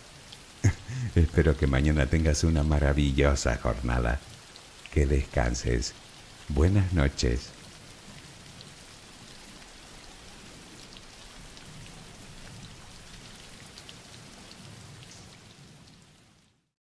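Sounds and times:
steady rain falling: 0.0 - 16.7.

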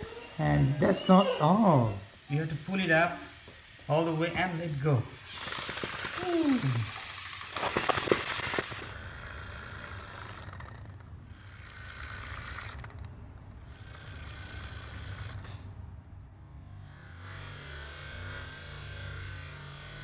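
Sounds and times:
toy wind-up mechanism clicking rattle: 0.0 - 15.7
low whir of toy mechanism: 0.0 - 16.0, 16.6 - 20.0.

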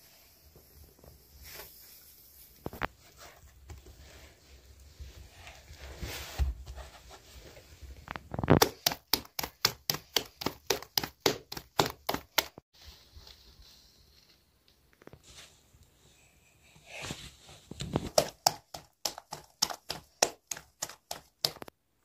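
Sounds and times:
dough slapped between palms: 8.4 - 12.6, 18.0 - 21.7.

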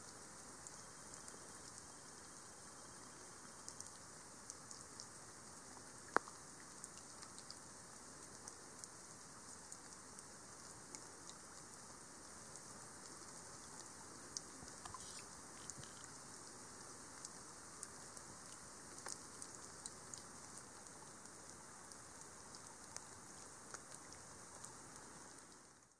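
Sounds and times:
faint steady rainfall: 0.0 - 25.9
raindrops ticking: 13.7 - 25.9.

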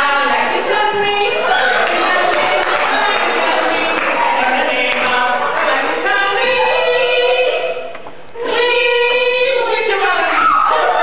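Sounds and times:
men singing unaccompanied: 0.0 - 7.8.

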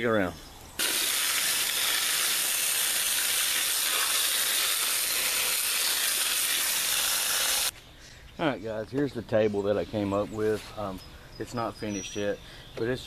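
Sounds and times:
water spraying from hose: 0.8 - 7.7.

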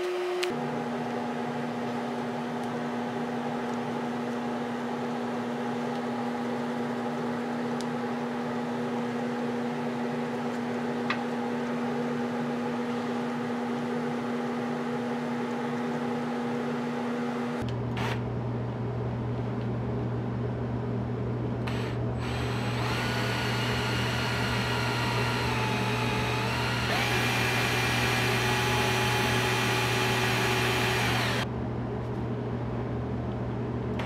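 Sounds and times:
machine hum: 16.1 - 34.0.

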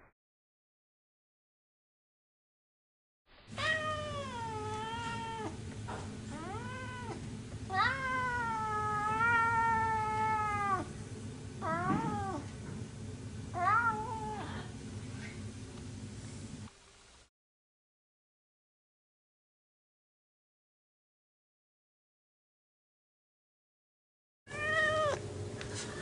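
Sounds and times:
cat meowing: 3.6 - 5.6, 6.3 - 10.9, 11.6 - 12.5, 13.6 - 14.6, 24.5 - 25.2.

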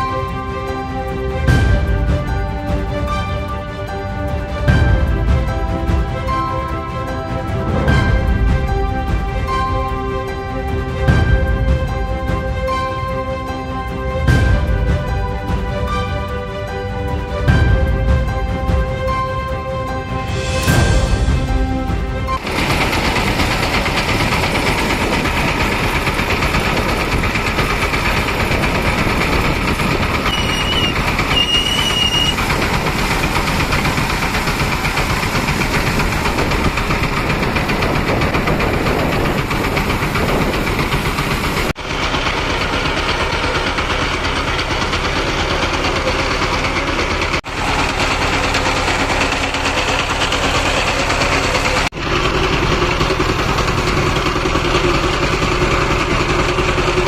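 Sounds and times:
motorcycle engines rumbling: 22.3 - 57.0
short high whistle: 30.2 - 32.4.

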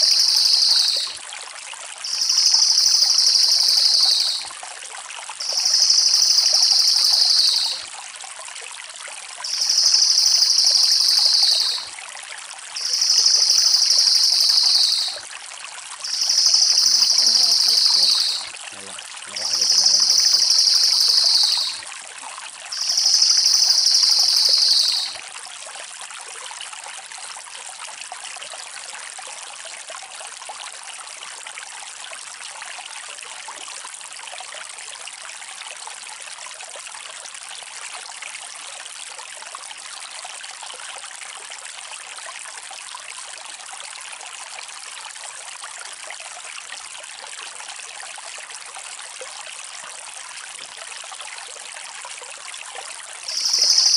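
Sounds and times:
trickling water: 0.0 - 53.9
jay rolling trill call: 16.1 - 18.5, 19.3 - 21.8.

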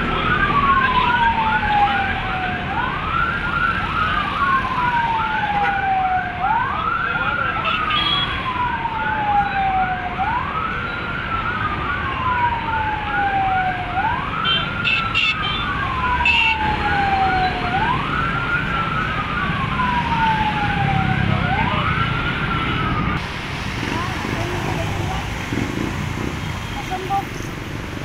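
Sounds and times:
siren wailing: 0.0 - 27.5
road traffic: 0.0 - 28.0
siren yelp chirping: 7.6 - 23.2.

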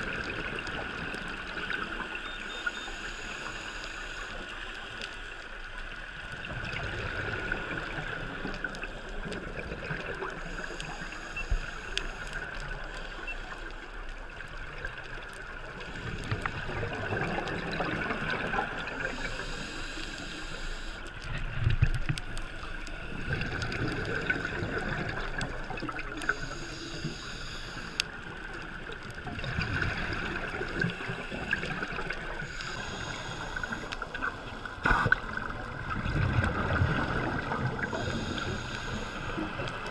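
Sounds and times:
muffled water noise: 0.0 - 39.9
small clicks: 7.7 - 17.9, 18.5 - 35.5
diver regulator breathing: 10.4 - 13.9, 18.9 - 21.3, 26.1 - 28.3, 30.7 - 35.4, 37.7 - 39.9
bubbles gurgling underwater: 15.7 - 19.1, 23.0 - 26.4, 28.7 - 32.6, 34.7 - 38.4.

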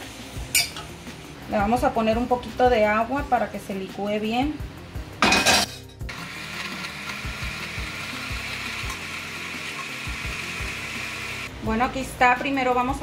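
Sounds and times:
blender whirring: 6.1 - 11.5.

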